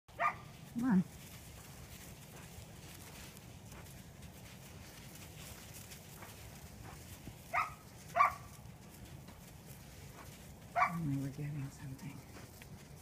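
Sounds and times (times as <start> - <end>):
dog barking sharply: 0.2 - 0.4, 7.5 - 8.5, 10.8 - 11.0.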